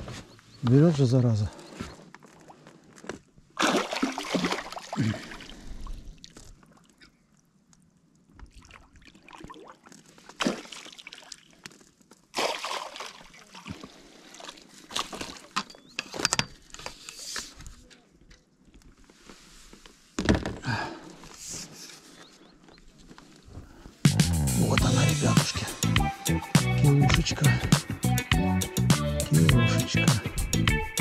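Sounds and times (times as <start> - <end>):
water sloshing and splashing: 3.6 - 15.7.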